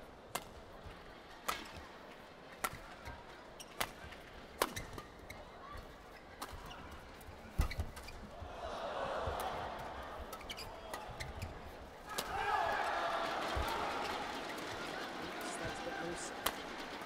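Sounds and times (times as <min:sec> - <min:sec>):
faint arena background: 0:00.0 - 0:17.0
racquets hitting shuttlecock: 0:02.6 - 0:05.1, 0:09.4 - 0:17.0.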